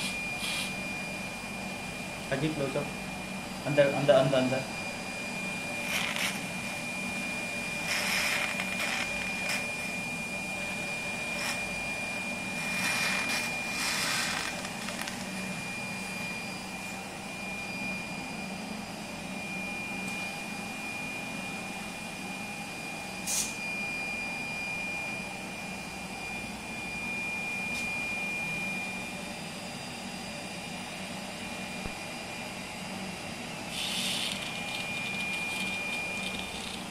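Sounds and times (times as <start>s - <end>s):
short hissing bursts: 0.0s - 0.7s, 33.7s - 34.4s
suction aspirator hum with whistle: 0.0s - 36.9s.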